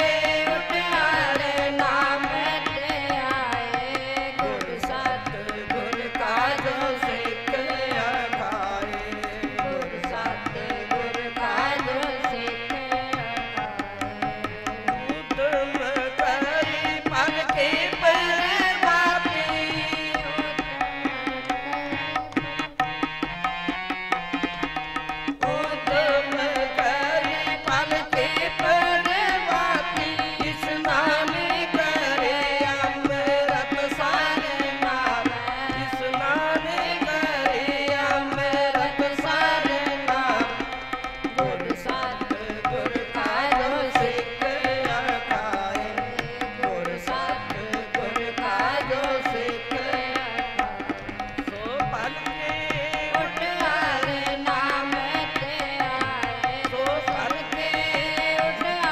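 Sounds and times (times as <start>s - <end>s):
women singing a hymn: 0.0s - 14.0s, 25.5s - 50.6s, 52.4s - 58.9s
harmoniums: 0.0s - 58.9s
tabla beat: 0.0s - 58.9s.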